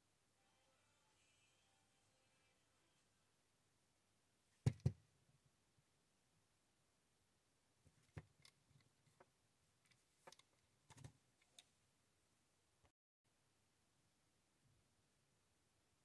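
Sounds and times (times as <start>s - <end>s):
faint clicks and taps: 7.9s - 11.7s.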